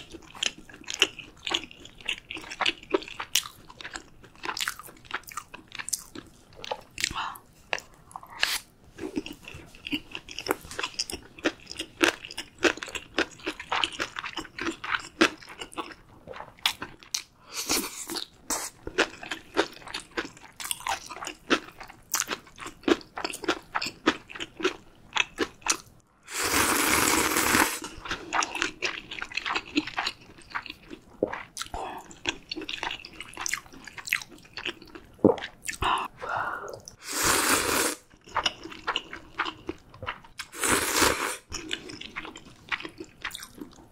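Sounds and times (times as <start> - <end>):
loud noodle slurps: 26.3 - 27.9, 37.0 - 38.0, 40.5 - 41.5
close chewing with wet clicks: 28.0 - 35.8, 41.5 - 43.9.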